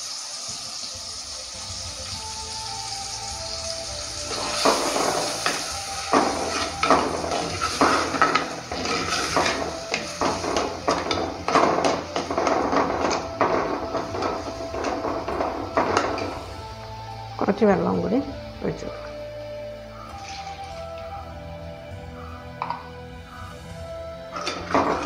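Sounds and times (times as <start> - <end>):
metal spoon scraping clay pot: 6.5 - 12.2.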